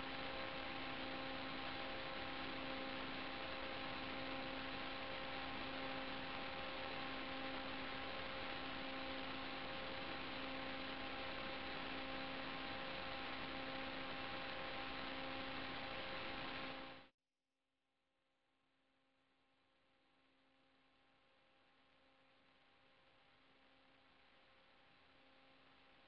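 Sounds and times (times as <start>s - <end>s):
steady hiss: 0.0s - 17.0s.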